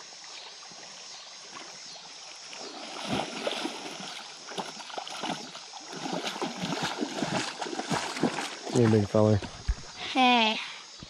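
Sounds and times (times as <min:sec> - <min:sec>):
river water rippling: 0:00.0 - 0:11.0
feet splashing through water: 0:02.4 - 0:10.0.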